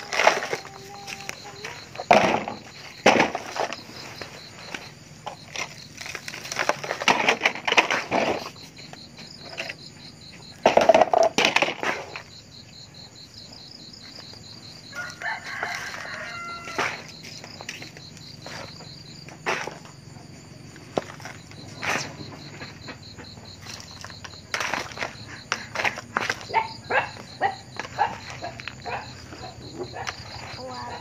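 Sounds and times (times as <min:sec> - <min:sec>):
high insect buzz: 0:11.8 - 0:25.5
rooster crowing: 0:14.8 - 0:17.1
plastic shovel scraping dirt: 0:19.4 - 0:19.9, 0:20.8 - 0:22.8, 0:23.6 - 0:26.7.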